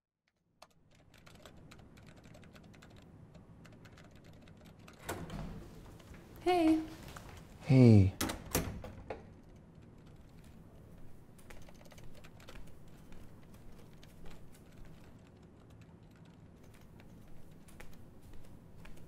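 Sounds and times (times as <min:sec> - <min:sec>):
typing on laptop keyboard: 0:00.6 - 0:05.0, 0:09.3 - 0:19.0.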